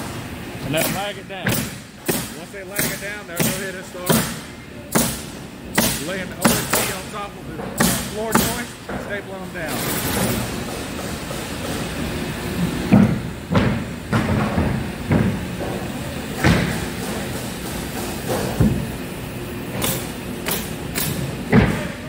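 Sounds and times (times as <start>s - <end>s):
pneumatic stapler snaps: 19.8s - 21.2s.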